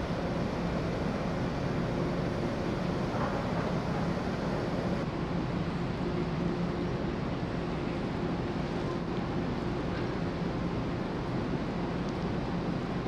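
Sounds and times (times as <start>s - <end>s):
steady rushing noise: 0.0s - 5.1s
ship engines low hum: 0.0s - 13.0s.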